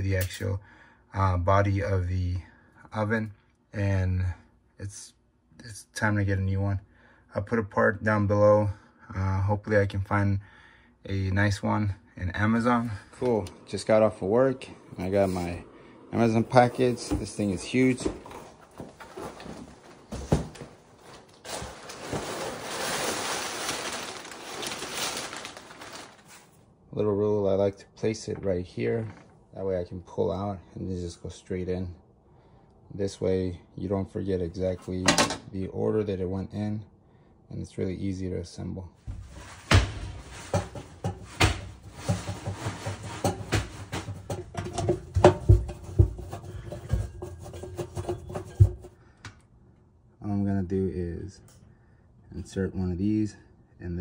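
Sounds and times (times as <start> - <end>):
plastic bag rustling: 16.2 - 26.6, 39.1 - 49.0
packing paper crinkling: 18.8 - 26.6.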